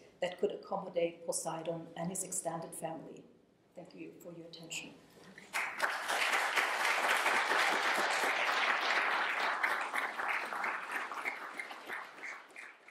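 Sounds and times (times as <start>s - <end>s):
audience applauding: 5.4s - 12.9s.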